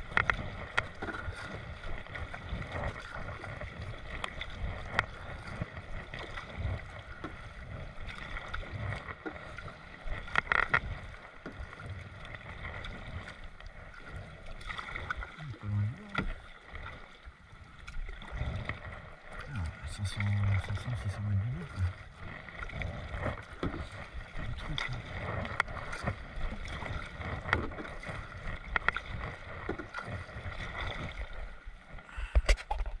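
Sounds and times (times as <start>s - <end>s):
kayak paddle strokes in water: 0.0s - 33.0s
water drips and splashes: 8.0s - 31.4s.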